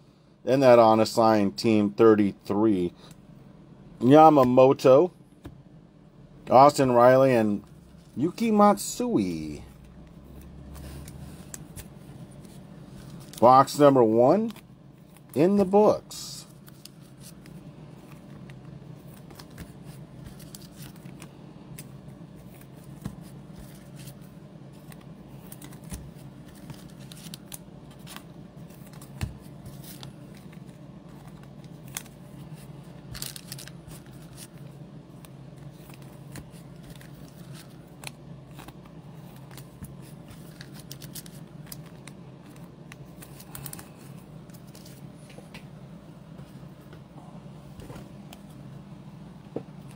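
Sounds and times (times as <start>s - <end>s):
steady low hum: 0.0s - 49.9s
cards and packaging clicks and rustles: 6.5s - 45.5s.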